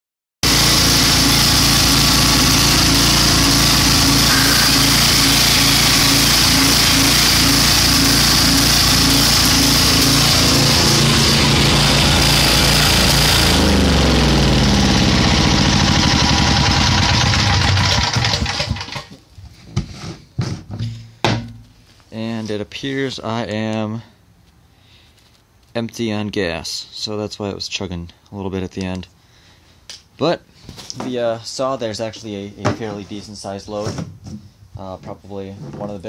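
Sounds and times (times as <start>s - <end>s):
generator engine running: 0.4s - 19.1s
circular saw motor whine: 0.5s - 17.9s.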